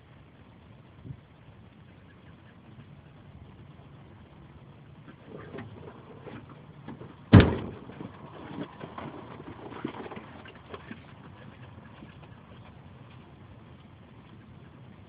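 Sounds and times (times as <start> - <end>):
loud sudden thump: 7.3 - 7.8.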